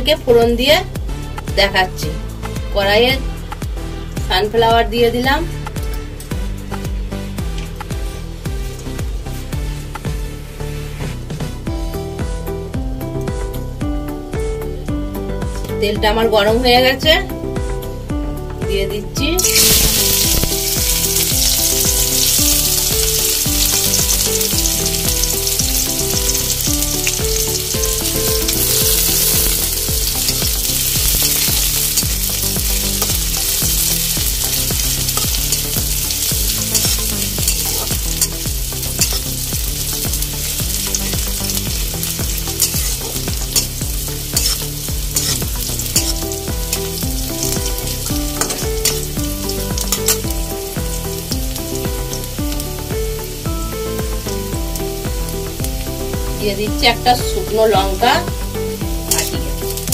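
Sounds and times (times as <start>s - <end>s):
onions sizzling in oil: 5.7s - 11.0s, 19.4s - 59.9s
metal spatula striking pan: 44.4s - 50.3s, 59.1s - 59.5s.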